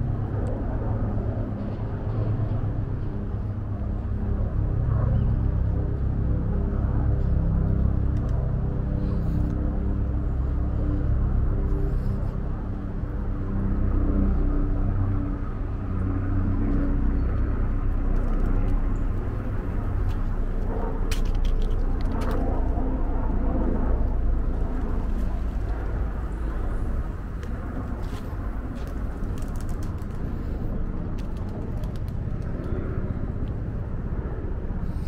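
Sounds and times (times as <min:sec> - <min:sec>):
engine hum: 0:00.0 - 0:35.0
low rumble of traffic: 0:00.0 - 0:35.0
light clicks: 0:08.1 - 0:08.4.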